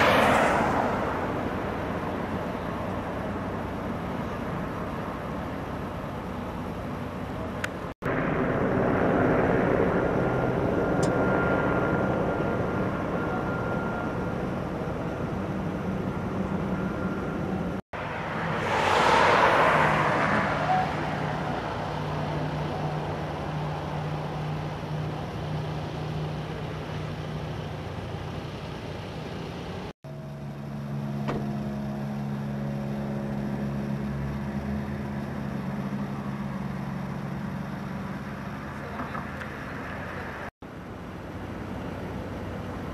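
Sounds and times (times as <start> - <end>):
car passing by: 0.0 - 2.3, 18.0 - 24.7
low engine drone: 0.0 - 42.9
idling vehicle engines: 0.9 - 18.3, 20.6 - 42.9.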